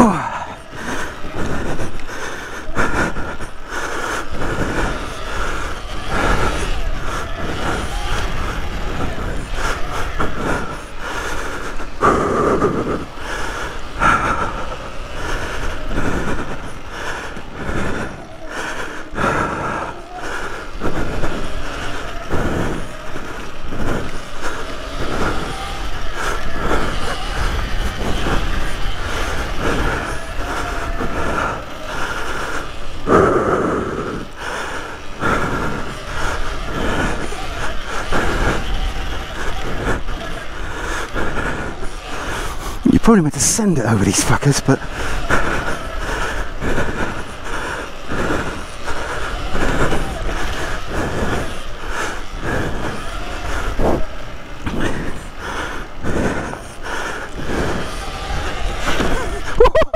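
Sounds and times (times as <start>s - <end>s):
electric motor whine: 21.0s - 42.9s, 44.8s - 59.9s.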